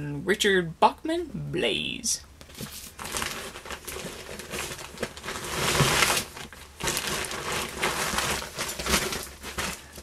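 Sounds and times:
books being handled: 0:02.4 - 0:10.0
bag rustling: 0:02.5 - 0:10.0.

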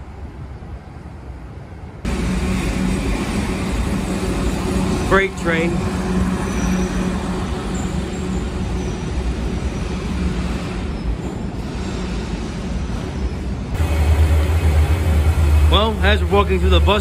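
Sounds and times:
freight train rumbling past: 0:00.0 - 0:17.0
deep steady hum: 0:13.8 - 0:17.0.

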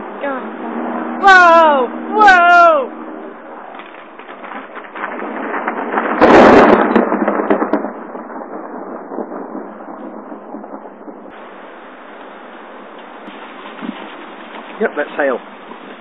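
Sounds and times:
thunderclap: 0:00.0 - 0:16.0
hail falling: 0:03.7 - 0:16.0.

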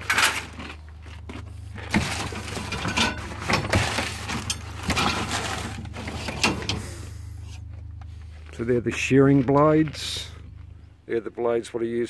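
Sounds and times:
metal objects clattering: 0:00.0 - 0:01.0, 0:01.8 - 0:06.9
steady low hum: 0:00.0 - 0:12.0.

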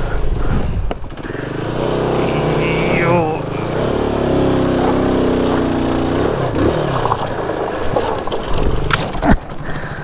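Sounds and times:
motorcycle engine running: 0:00.0 - 0:10.0
rough scraping on rocks: 0:06.3 - 0:09.5.

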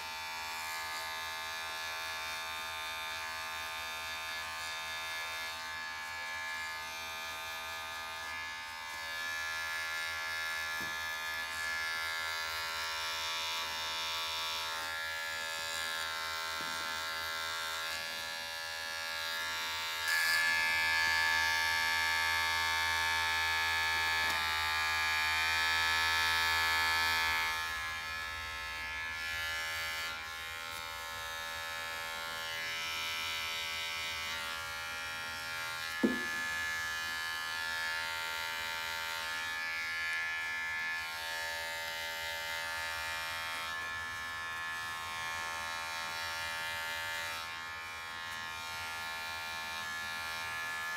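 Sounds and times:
electric hair clippers buzzing: 0:00.0 - 0:50.9.

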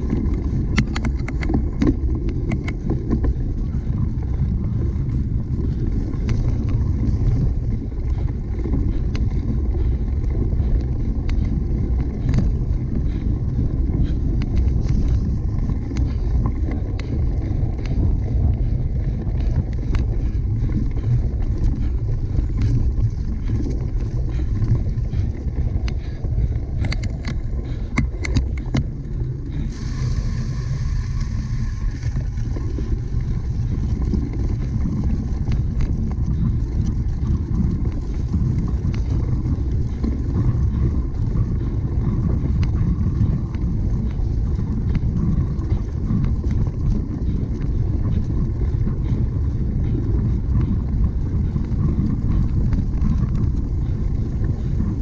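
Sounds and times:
bike clicks and rattles: 0:00.0 - 0:55.0
bike low rumble: 0:00.0 - 0:55.0
wind buffeting microphone: 0:00.0 - 0:55.0.

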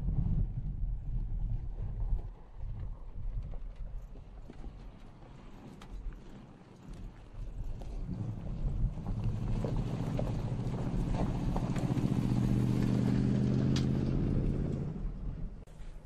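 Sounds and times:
gravel crunching under tyres: 0:00.5 - 0:16.0
pickup truck engine driving past: 0:08.0 - 0:15.6.

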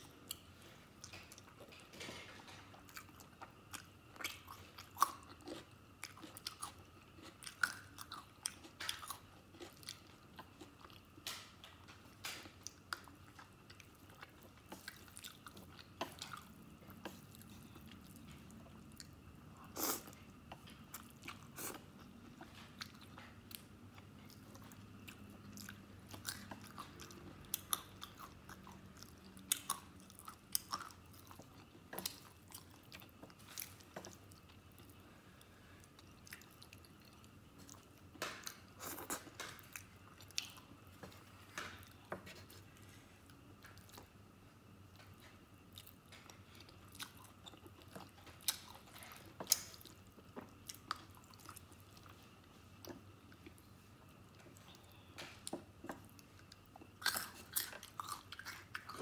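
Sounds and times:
chewing with wet clicks: 0:01.0 - 0:19.2, 0:20.1 - 0:35.0, 0:35.9 - 0:42.3, 0:44.9 - 0:53.7, 0:54.3 - 0:59.0.

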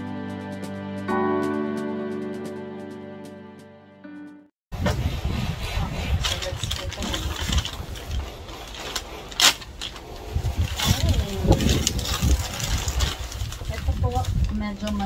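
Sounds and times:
paper bag rustling and crinkling: 0:06.0 - 0:15.0.

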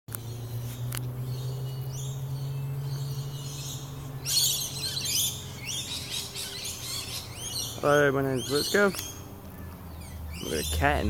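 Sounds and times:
steady low hum: 0:00.2 - 0:11.0
magpie calling: 0:03.4 - 0:11.0.

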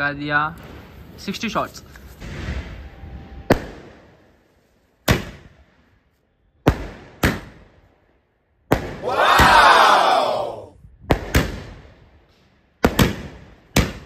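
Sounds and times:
firework shots banging: 0:12.8 - 0:14.0.

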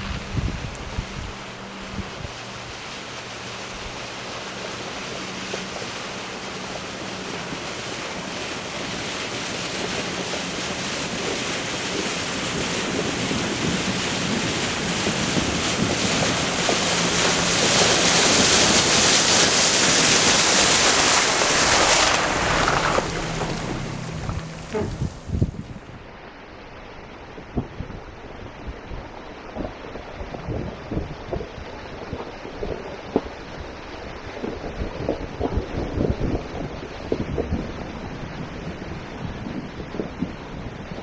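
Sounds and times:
tyres splashing through water: 0:00.0 - 0:26.0
low engine hum: 0:00.0 - 0:41.0.

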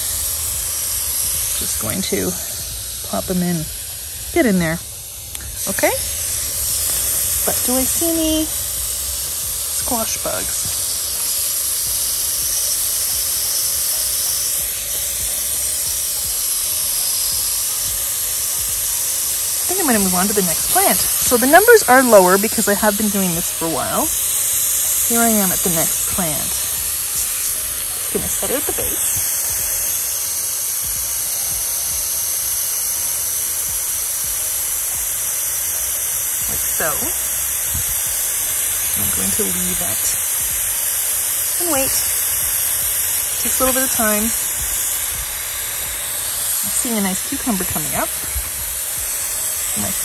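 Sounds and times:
hose spraying water mist: 0:00.0 - 0:50.0.

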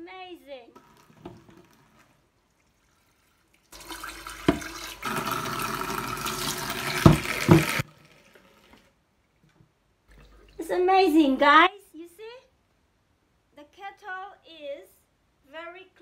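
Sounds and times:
water running into sink: 0:00.8 - 0:09.0.

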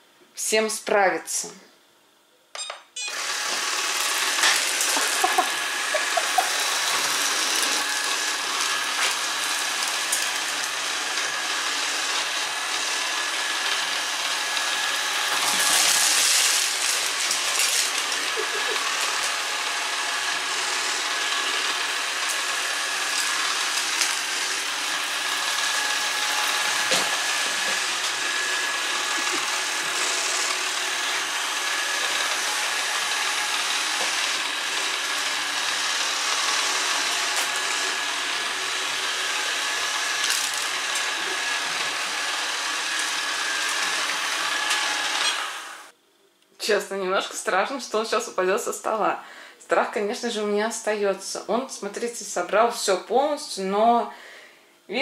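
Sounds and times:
robot vacuum whirring: 0:03.0 - 0:45.9.

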